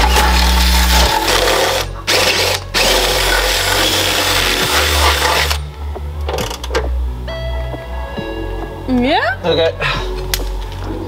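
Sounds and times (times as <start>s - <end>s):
cordless drill running: 0.0s - 5.6s.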